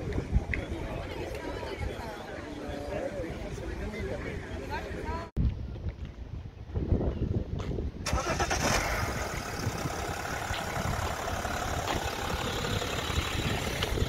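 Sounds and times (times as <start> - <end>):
car engine starting and idling: 8.0 - 14.0.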